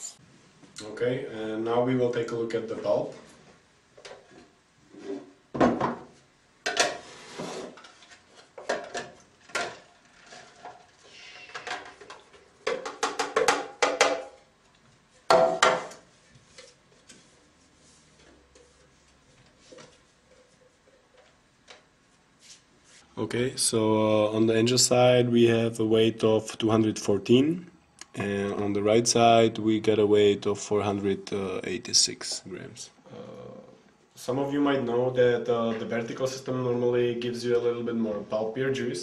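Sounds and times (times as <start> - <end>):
plastic containers knocking and clattering: 5.5 - 7.0, 7.7 - 14.4, 15.3 - 16.1.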